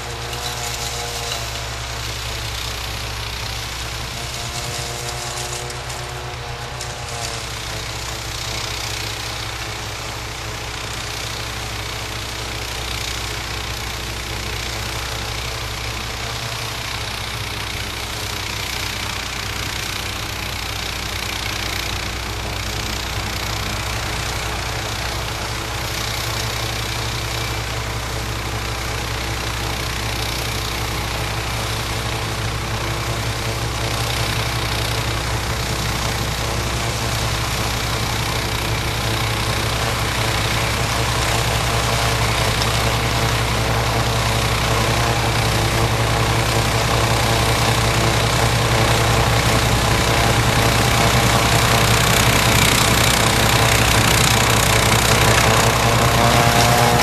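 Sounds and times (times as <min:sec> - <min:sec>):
snowblower engine running: 0:00.0 - 0:57.0.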